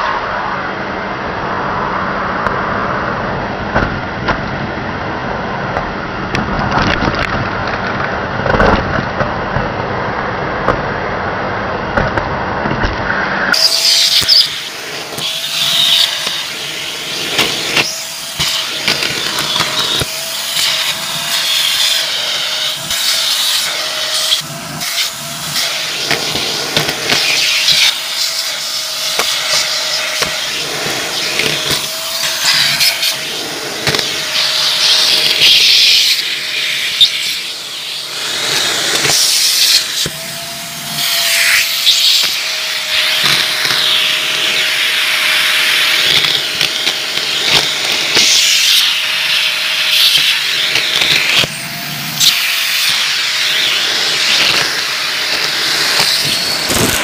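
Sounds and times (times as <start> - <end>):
vacuum cleaner running: 13.1 - 57.0
debris crackling into nozzle: 49.9 - 57.0.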